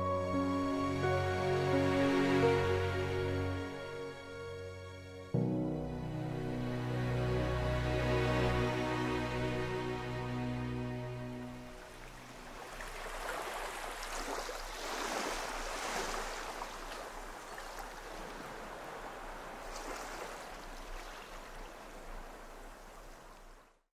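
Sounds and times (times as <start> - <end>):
small waves washing up beach: 11.2 - 23.8.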